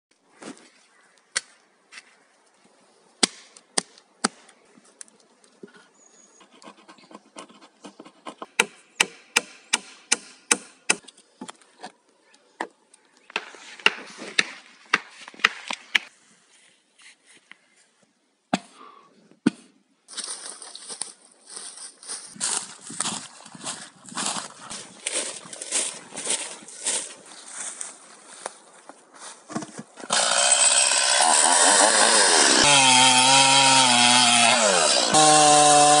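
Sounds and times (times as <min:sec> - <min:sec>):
axe chopping logs: 0:03.2 - 0:04.5, 0:08.5 - 0:11.1
hammer striking wooden planks: 0:08.5 - 0:11.0.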